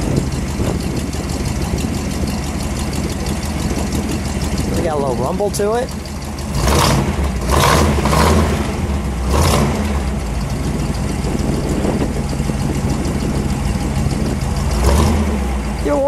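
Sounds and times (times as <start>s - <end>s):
car engine rumble and throttle blips: 0.0s - 16.0s.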